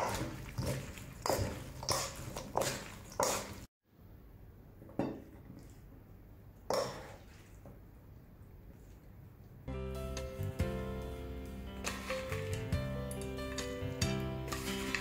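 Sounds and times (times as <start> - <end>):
salad tossing in metal bowl: 14.4 - 15.0.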